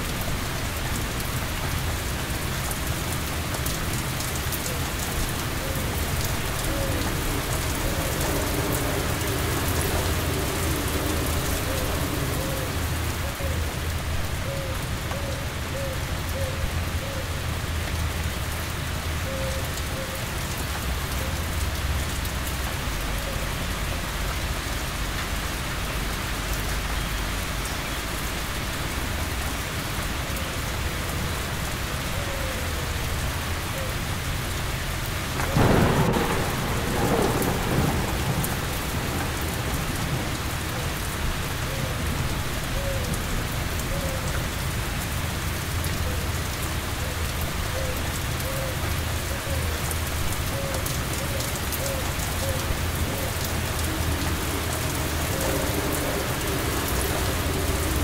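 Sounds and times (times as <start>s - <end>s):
heavy rain falling: 0.0s - 58.0s
thunder crack and rumble: 3.1s - 13.4s, 35.2s - 43.4s, 50.1s - 58.0s.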